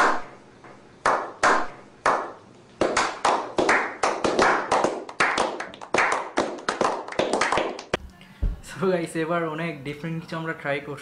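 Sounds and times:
men slow clapping: 1.0 - 8.0.

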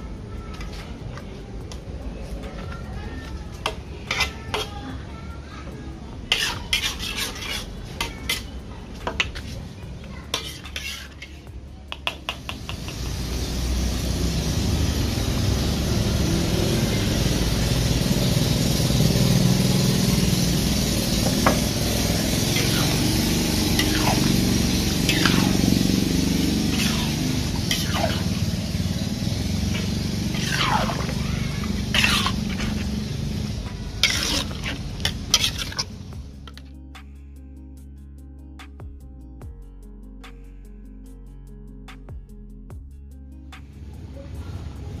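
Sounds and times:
metal spatula scraping a wok: 3.7 - 5.0, 6.3 - 11.5, 19.9 - 36.6
curry bubbling and sizzling: 6.3 - 8.5, 10.3 - 11.2, 12.4 - 36.6.

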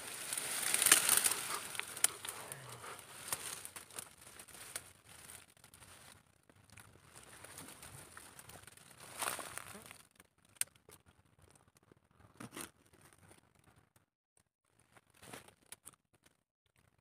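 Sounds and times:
stems snapping: 0.0 - 5.8
plants rustling and crackling: 0.0 - 11.0.

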